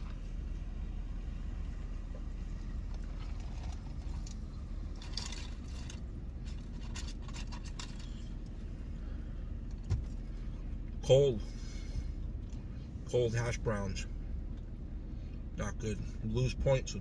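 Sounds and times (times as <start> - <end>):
low rumble inside truck cab: 0.0 - 17.0.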